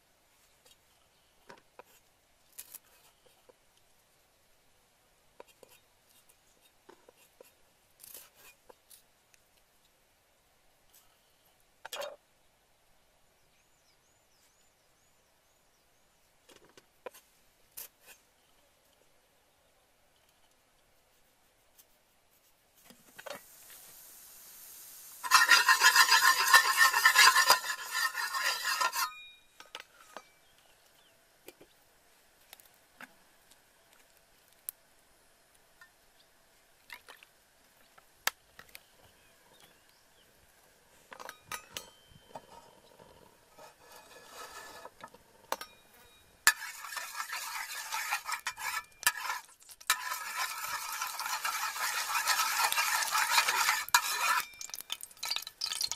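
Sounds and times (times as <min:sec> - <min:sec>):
oil sizzling in frying pan: 0:23.2 - 0:29.1, 0:46.5 - 0:55.9
loud hissing burst: 0:23.4 - 0:25.9
metal spatula scraping pan: 0:25.2 - 0:29.3, 0:43.5 - 0:45.0, 0:46.5 - 0:55.9
utensils clinking on cookware: 0:25.2 - 0:29.4, 0:46.5 - 0:55.9.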